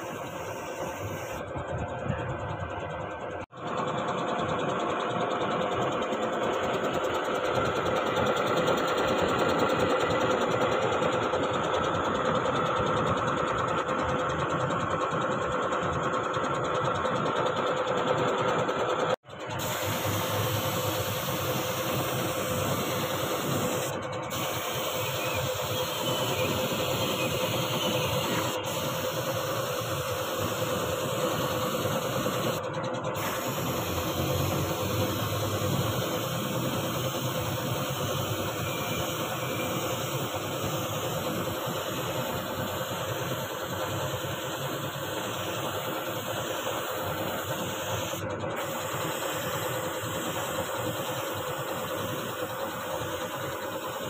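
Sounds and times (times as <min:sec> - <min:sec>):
spray gun hissing: 0:00.0 - 0:01.4, 0:19.6 - 0:32.6, 0:33.2 - 0:54.0
motor running: 0:00.0 - 0:54.0.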